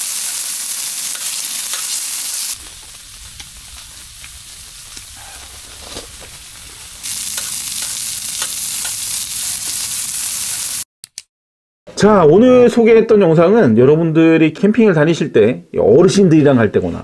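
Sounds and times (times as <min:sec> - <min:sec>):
meat sizzling on grill: 0:00.0 - 0:10.8
low rumble: 0:02.5 - 0:07.2.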